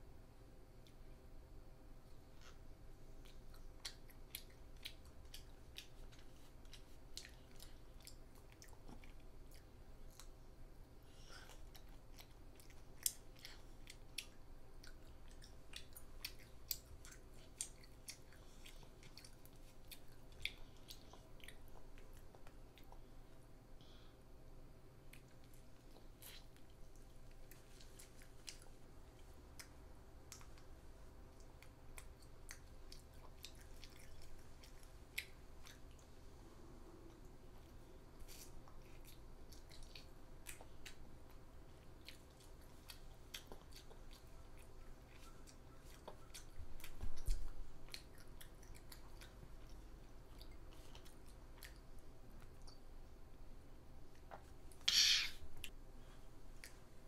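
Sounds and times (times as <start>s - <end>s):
child chewing crispy food: 2.0s - 24.1s, 25.0s - 57.0s.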